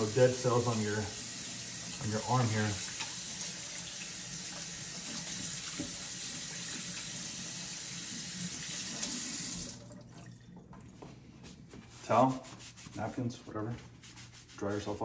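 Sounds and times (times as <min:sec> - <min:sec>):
faucet running into steel sink: 0:00.0 - 0:10.8
hands scrubbing: 0:11.0 - 0:15.0.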